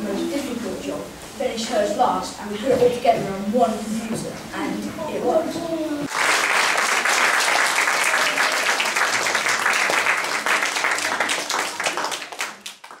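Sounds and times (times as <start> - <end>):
children applauding: 6.1 - 13.0.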